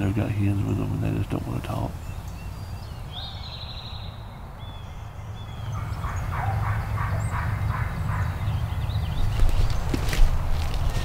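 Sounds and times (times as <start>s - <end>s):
songbird trill: 0.0s - 11.0s.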